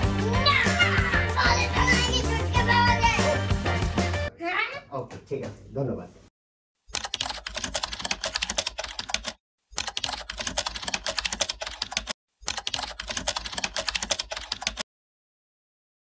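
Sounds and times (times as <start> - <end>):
rapid keyboard typing: 6.9 - 14.8.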